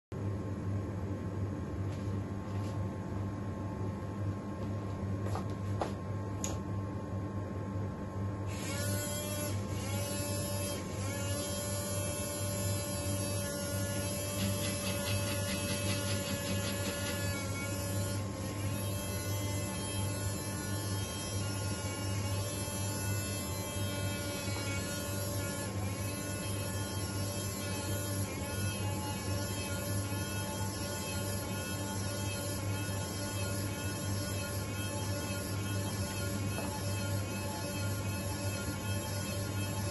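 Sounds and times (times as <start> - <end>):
electric motor and gears whirring: 8.4 - 39.9.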